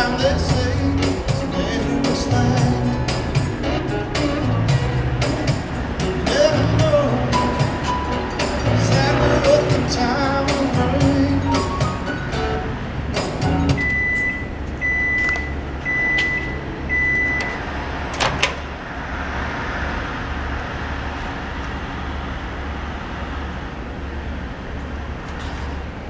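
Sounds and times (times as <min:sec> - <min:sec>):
microwave short beeps: 0:13.8 - 0:17.6.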